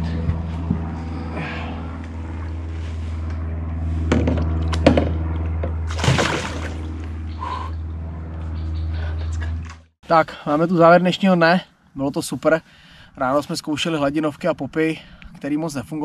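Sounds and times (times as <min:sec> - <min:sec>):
low boat motor hum: 0:00.0 - 0:10.0
fish splashing at water surface: 0:05.9 - 0:07.0.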